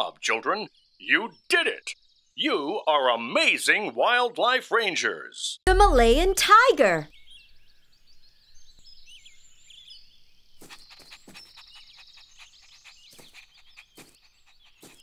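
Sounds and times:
small birds chirping: 0:00.0 - 0:03.8, 0:06.4 - 0:15.0
bird trill: 0:07.1 - 0:15.0.

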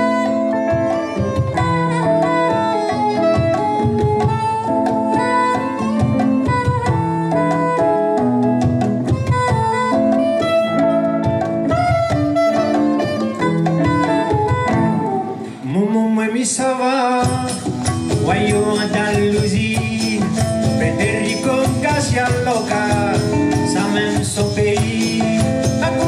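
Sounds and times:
hand drums and congas: 0:00.0 - 0:15.8, 0:16.5 - 0:26.0
saxophone-like held notes: 0:00.0 - 0:15.8
live band playing: 0:00.0 - 0:26.0
person singing: 0:14.0 - 0:26.0.

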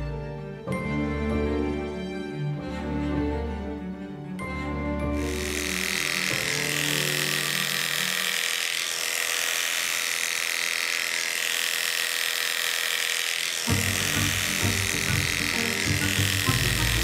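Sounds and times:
electric clippers buzzing: 0:05.1 - 0:17.0.

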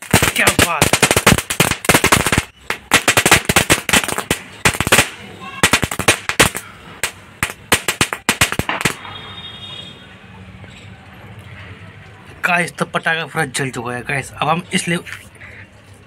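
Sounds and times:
faint burning hiss: 0:00.0 - 0:09.0
firecrackers crackling bangs: 0:00.0 - 0:09.3.

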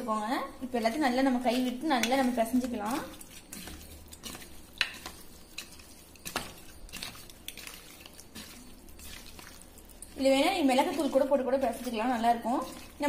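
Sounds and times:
hands mixing chicken in bowl: 0:00.6 - 0:13.0.

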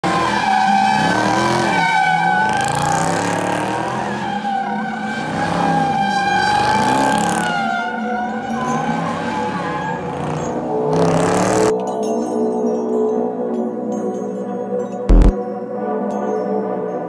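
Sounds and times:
car engine revving: 0:00.0 - 0:11.7, 0:15.1 - 0:15.3
car tyres squealing: 0:00.0 - 0:11.7.

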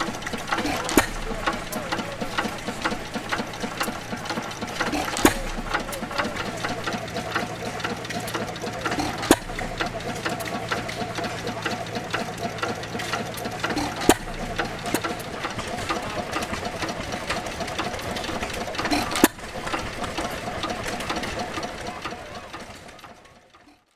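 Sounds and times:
sharp engine pops: 0:00.0 - 0:10.9, 0:13.0 - 0:17.4
stationary gas engine clattering: 0:00.0 - 0:23.9.

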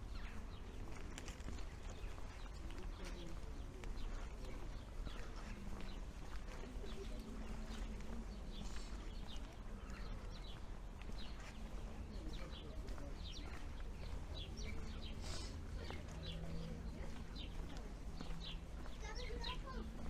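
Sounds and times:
low street ambience rumble: 0:00.0 - 0:20.0
small birds chirping: 0:00.0 - 0:20.0.

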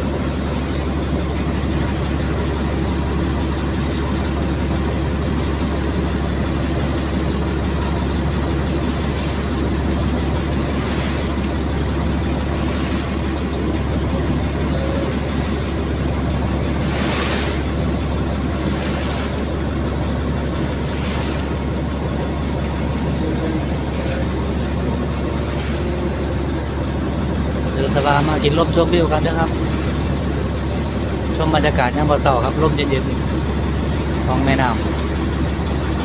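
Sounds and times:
boat engine droning: 0:00.0 - 0:36.0.

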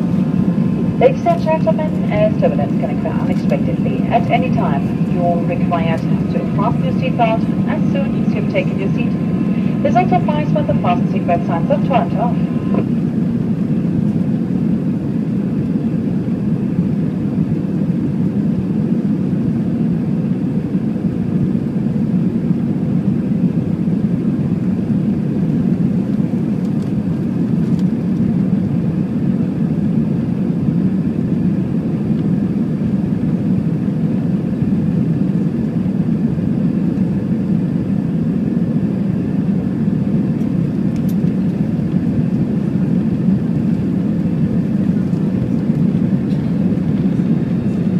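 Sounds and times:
faint steady hum: 0:00.0 - 0:18.2
jet cabin rumble: 0:00.0 - 0:47.9.

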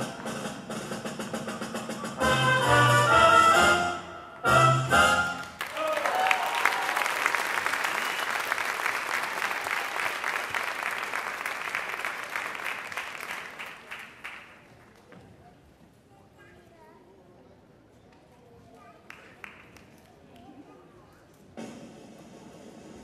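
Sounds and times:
audience cheering: 0:05.4 - 0:13.4
audience applauding: 0:05.4 - 0:14.8.

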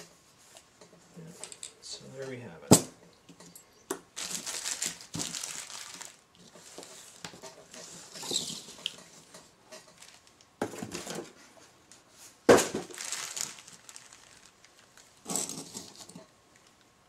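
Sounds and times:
plastic bag crinkling: 0:04.1 - 0:09.0, 0:09.8 - 0:11.2, 0:12.6 - 0:16.8
metal tool parts set down: 0:15.2 - 0:16.2.

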